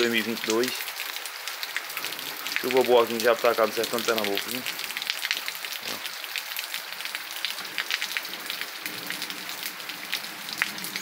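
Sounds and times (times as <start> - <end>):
raindrop taps: 0.0 - 6.1
rain on wet ground: 0.0 - 11.0.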